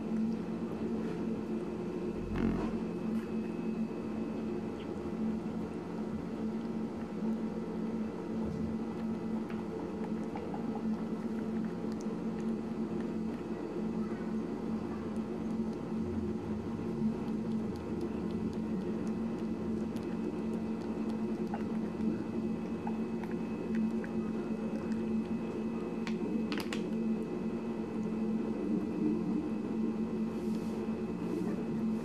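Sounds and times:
rabbit chewing wet squishing: 0.0 - 32.0
steady low hum: 0.0 - 32.0.

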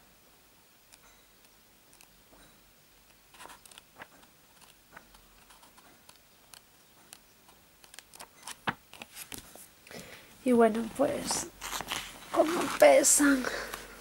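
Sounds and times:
comic book pages turning: 3.1 - 9.7, 10.9 - 13.9.

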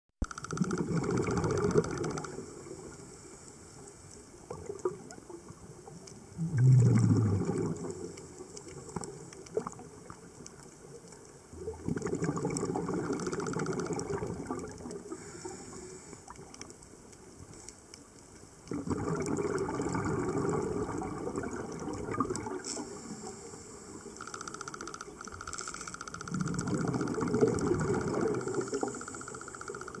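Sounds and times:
underwater regulator bubbles: 0.3 - 3.0, 4.5 - 10.4, 11.5 - 15.4, 18.7 - 30.0.

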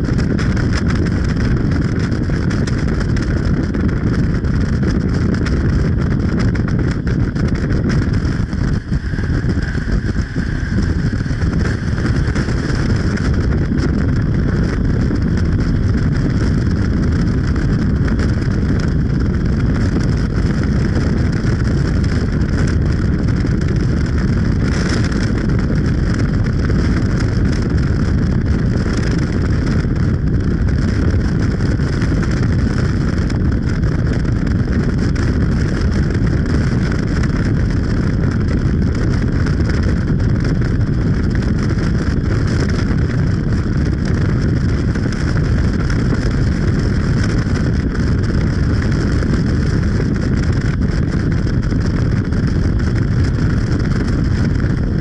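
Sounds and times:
road and wind noise: 0.0 - 55.0.

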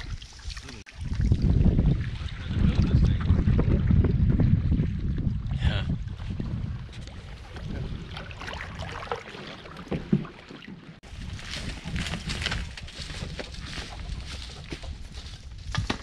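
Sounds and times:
wind on microphone: 0.0 - 9.0, 11.0 - 16.0
footsteps on forest trail: 11.0 - 15.9.

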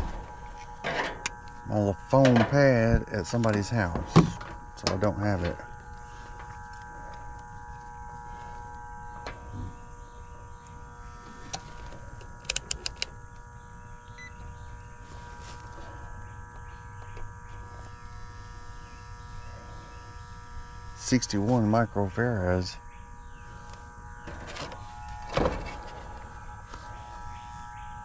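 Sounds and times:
electrical hum with held tones: 0.0 - 28.0
metallic tool clicks: 12.4 - 13.1.

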